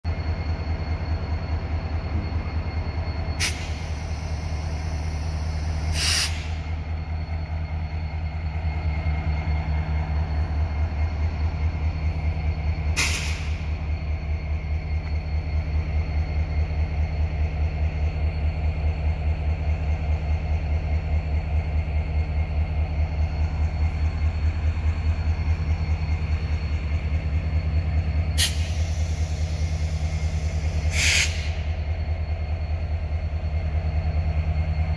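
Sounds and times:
electric locomotive humming: 0:00.0 - 0:34.9
air hisses: 0:05.8 - 0:06.6, 0:28.4 - 0:31.6.

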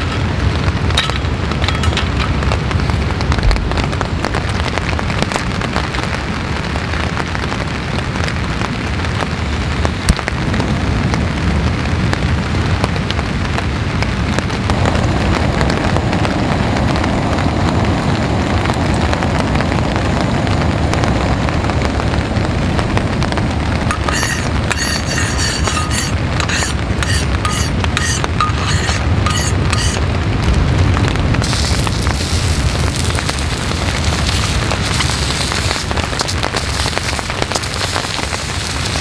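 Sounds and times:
light rain pattering: 0:00.0 - 0:39.0.

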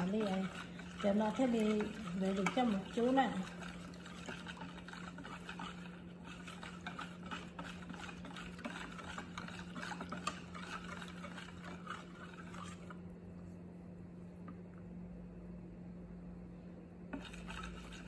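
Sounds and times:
whisk stirring batter in bowl: 0:00.0 - 0:13.2, 0:17.1 - 0:18.0
steady low hum: 0:00.0 - 0:18.0.

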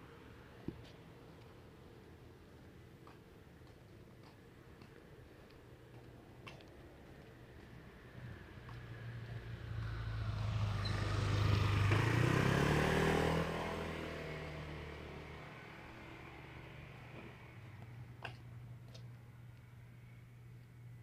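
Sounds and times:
vehicle driving past: 0:08.0 - 0:18.1.

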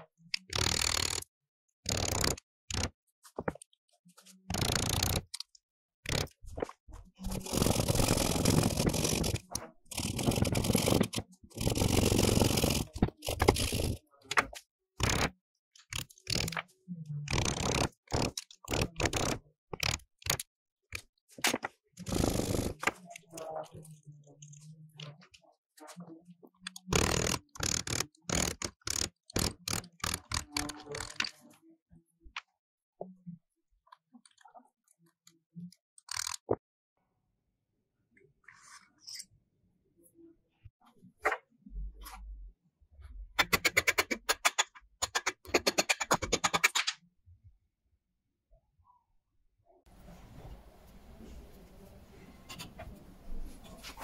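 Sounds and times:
hacksaw strokes: 0:07.3 - 0:14.0.

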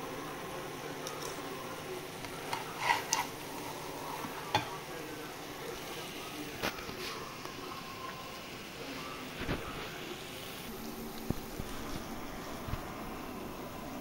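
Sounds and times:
food sizzling in a frying pan: 0:00.0 - 0:14.0
metal spatula scraping a pan: 0:02.4 - 0:04.7.

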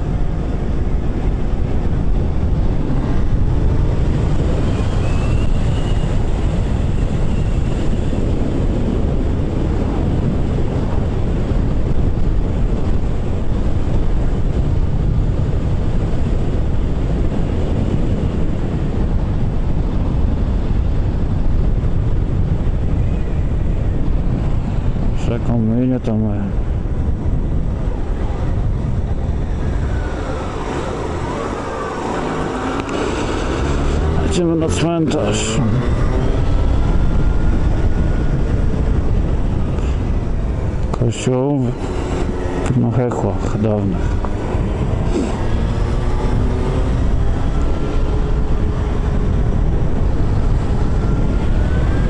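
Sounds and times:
road noise: 0:00.0 - 0:52.0
wind rush on microphone: 0:00.0 - 0:52.0
motorcycle engine: 0:26.6 - 0:52.0.

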